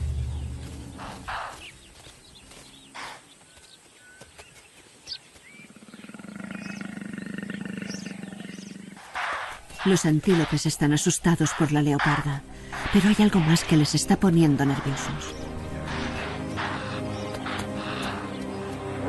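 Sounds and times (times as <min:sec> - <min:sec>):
animal low rasping growl: 0:05.6 - 0:10.6, 0:14.9 - 0:18.3
animal snorting: 0:05.6 - 0:14.0, 0:14.6 - 0:18.4.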